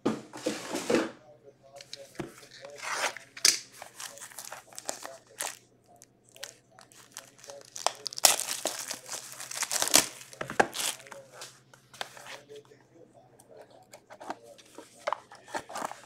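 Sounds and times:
plastic shrink wrap crinkling: 0:02.4 - 0:12.4.

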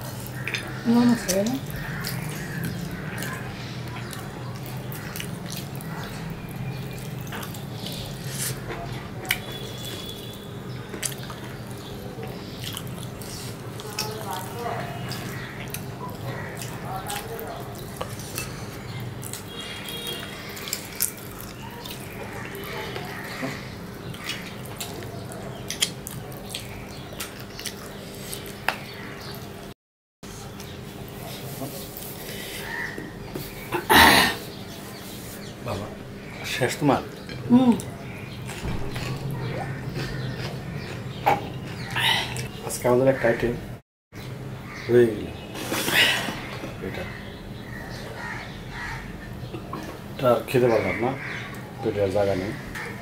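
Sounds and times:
chewing and lip smacks: 0:01.4 - 0:08.6, 0:12.2 - 0:18.6, 0:24.1 - 0:28.7, 0:38.5 - 0:42.5.

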